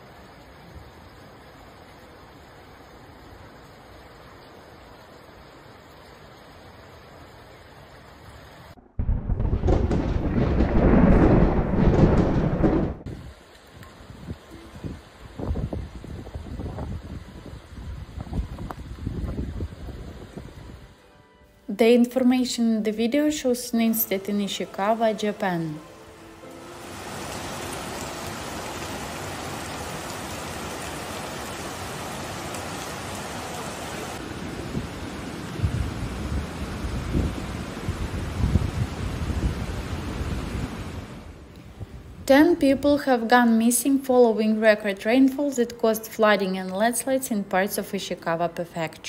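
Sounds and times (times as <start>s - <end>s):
faint steady hiss: 0.0s - 8.8s, 13.1s - 49.0s
rain falling: 0.0s - 20.9s, 22.9s - 49.0s
deep thunder-like rumble: 8.8s - 13.2s
floodwater rushing: 24.4s - 41.4s.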